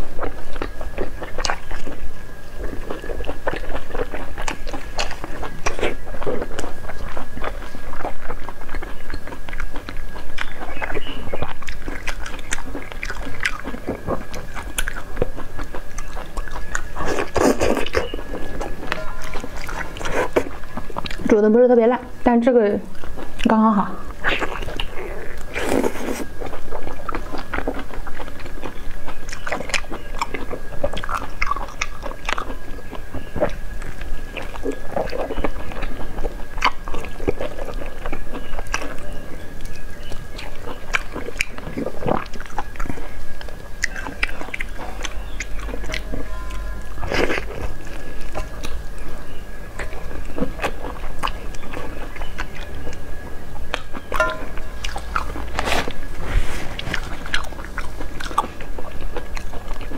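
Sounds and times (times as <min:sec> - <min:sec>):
chewing and sucking: 0:00.0 - 0:21.4, 0:22.9 - 0:59.9
faint steady high tone: 0:17.9 - 0:20.3, 0:43.8 - 0:50.4, 0:53.9 - 0:55.5.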